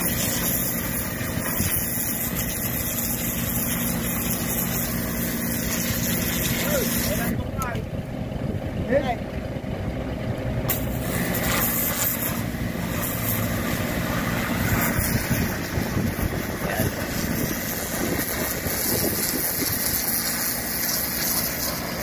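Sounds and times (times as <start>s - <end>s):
pressure washer jet hissing: 0.0s - 7.4s, 10.7s - 22.0s
engine running: 0.0s - 22.0s.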